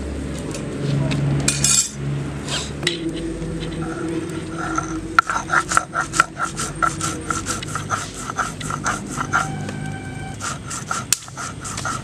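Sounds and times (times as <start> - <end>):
stone roller grinding seeds: 3.0 - 12.0.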